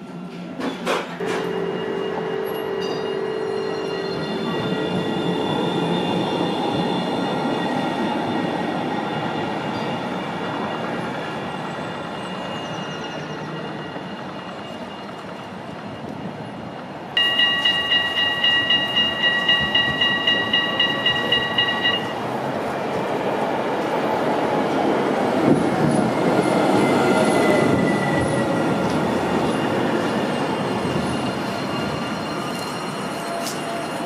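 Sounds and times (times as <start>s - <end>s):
tram rumbling: 0.0s - 34.0s
warning bell ringing rapidly: 17.2s - 22.2s.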